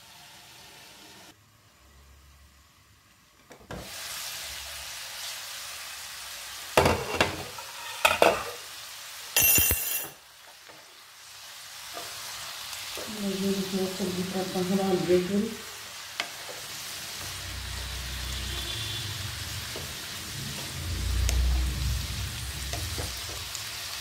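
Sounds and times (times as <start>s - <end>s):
vegetables sizzling in a frying pan: 0.0s - 9.4s, 10.2s - 24.0s
spatula scraping a pan: 6.8s - 8.6s.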